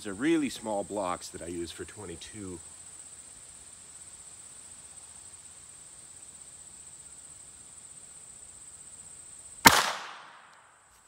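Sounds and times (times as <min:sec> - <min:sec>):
pistol shot with echo: 0:09.6 - 0:10.6.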